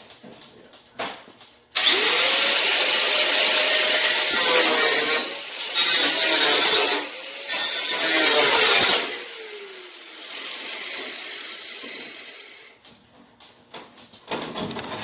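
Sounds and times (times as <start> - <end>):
power tool on metal pipe: 1.8 - 12.8.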